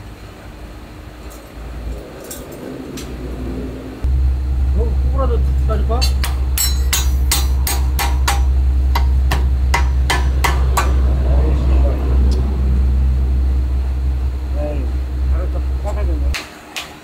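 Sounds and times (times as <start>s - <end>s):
steady low hum: 0.0s - 17.0s
hammer striking wooden handle: 6.2s - 11.0s.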